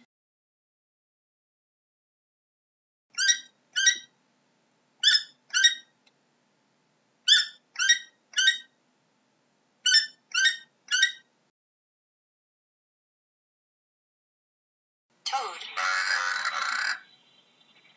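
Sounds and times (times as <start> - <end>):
animal high-pitched calls: 5.0 - 5.9, 7.3 - 8.7, 9.9 - 11.3, 15.3 - 17.9.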